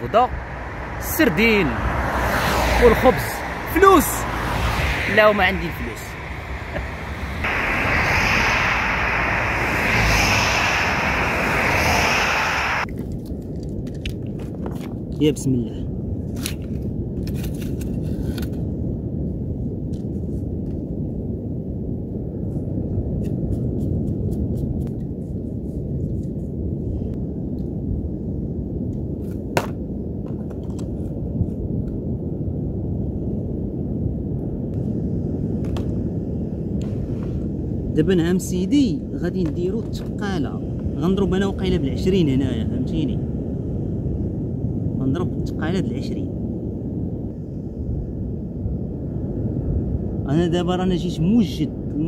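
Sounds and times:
surf: 0.0 - 12.8
highway traffic noise: 0.0 - 12.9
wind rushing: 0.0 - 13.1, 15.8 - 50.6.

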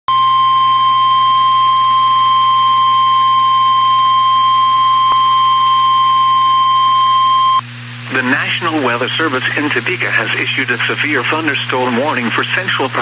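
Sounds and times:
high-pitched alarm tone: 0.2 - 7.6
faint radio hiss: 8.0 - 13.0.

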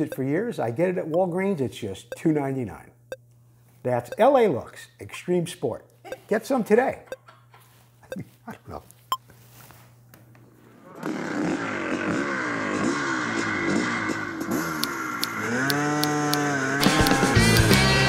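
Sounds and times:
background music: 16.8 - 18.0.

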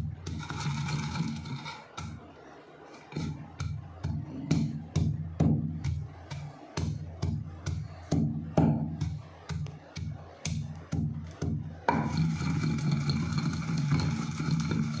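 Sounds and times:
pestle pounding in stone mortar: 3.1 - 15.0.

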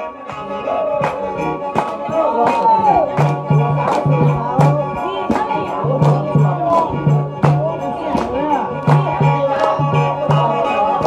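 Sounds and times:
ornamented gliding vocal: 0.0 - 11.0
sharp percussion strikes: 0.3 - 11.0.

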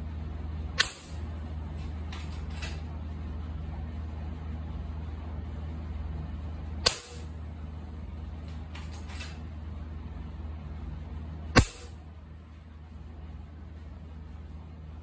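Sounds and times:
low hum: 0.0 - 15.0
air rifle shots: 0.8 - 1.2, 6.8 - 7.3, 11.6 - 12.0.

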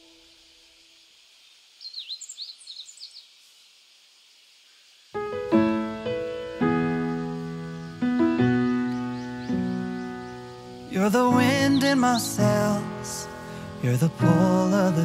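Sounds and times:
faint steady hiss: 0.0 - 15.0
bird chirping: 1.3 - 3.6, 4.6 - 15.0
piano chords: 5.2 - 15.0.

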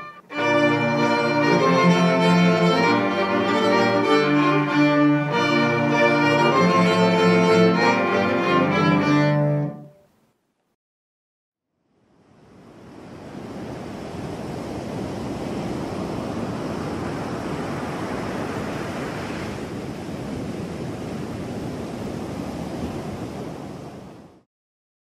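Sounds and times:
waves washing on shore: 12.4 - 24.4.

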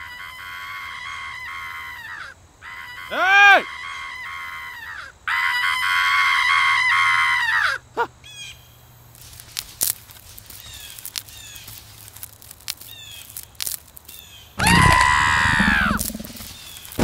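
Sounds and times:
harsh cartoon scream: 0.0 - 7.8, 14.6 - 16.5.

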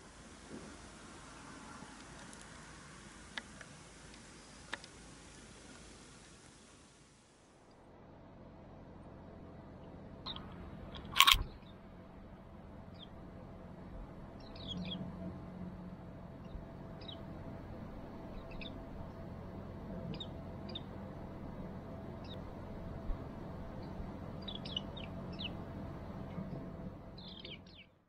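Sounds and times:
thin high bird calls: 23.8 - 25.6.

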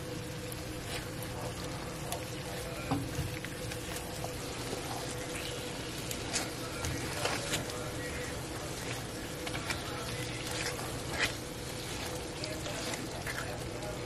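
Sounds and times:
sauce bubbling in a skillet: 0.0 - 14.0
steady hum: 0.0 - 14.0
spatula scraping a pan: 3.9 - 13.8.

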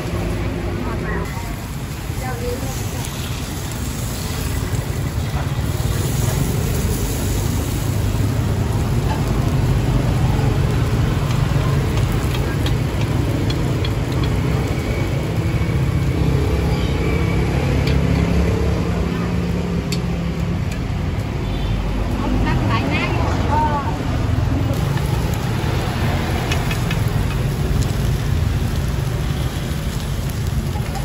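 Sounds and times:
low rumble of street traffic: 0.0 - 31.0.

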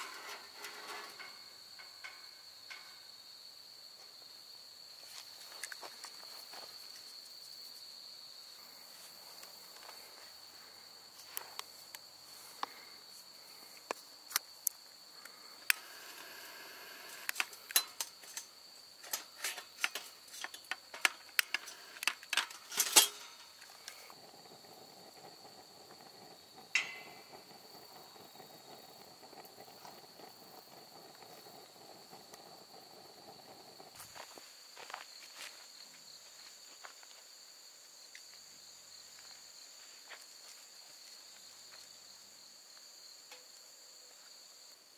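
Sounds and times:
insects trilling: 0.0 - 44.9
sharp clicks and knocks: 17.1 - 24.1, 26.6 - 28.1
sharp ringing clink: 26.8 - 27.3.

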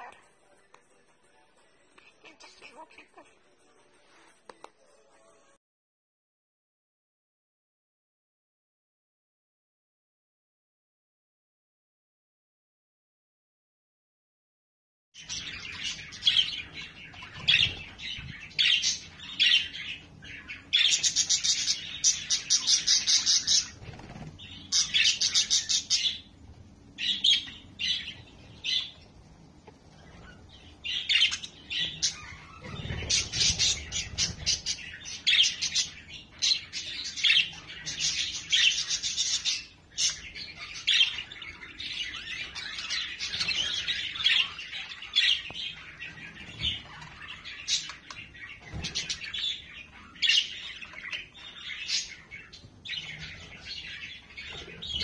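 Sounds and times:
budgerigars chattering: 15.2 - 26.3.

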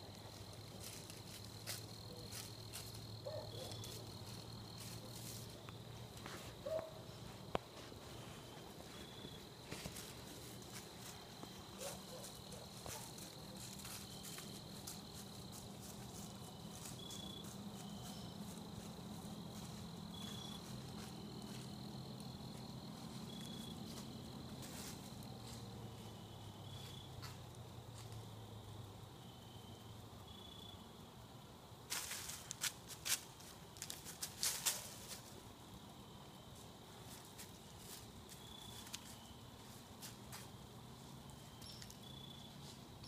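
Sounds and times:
cricket short chirps: 41.4 - 43.0.

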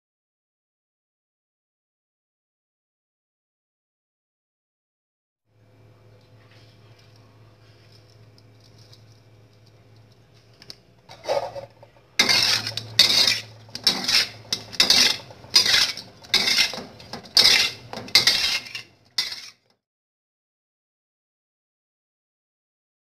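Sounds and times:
tofu scraping in container: 11.1 - 19.6.

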